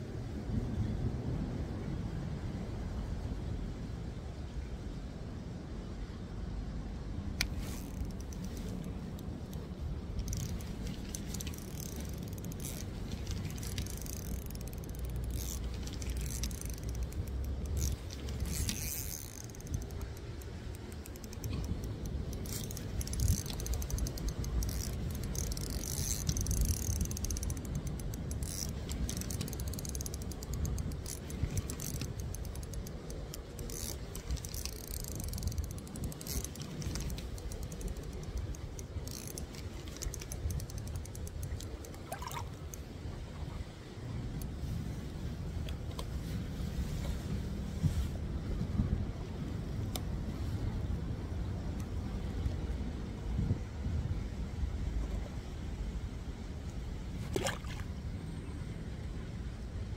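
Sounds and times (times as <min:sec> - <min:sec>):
fishing reel gears clicking: 0:07.4 - 0:42.8.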